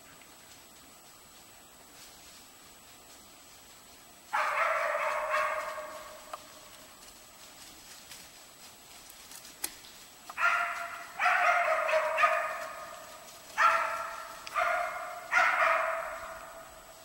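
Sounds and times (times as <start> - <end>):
dog barking: 4.3 - 6.2, 10.4 - 13.0, 13.6 - 16.7.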